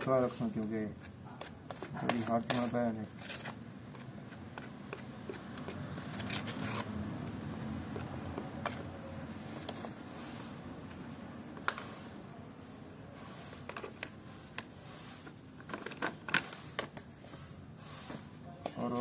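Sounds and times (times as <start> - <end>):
tool scraping wet grout: 0.0 - 6.9.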